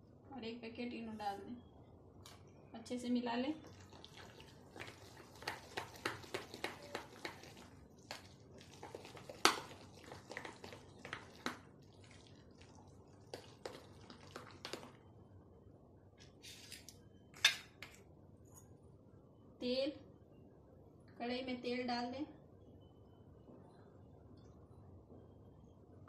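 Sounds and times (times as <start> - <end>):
batter squelching: 3.6 - 15.1.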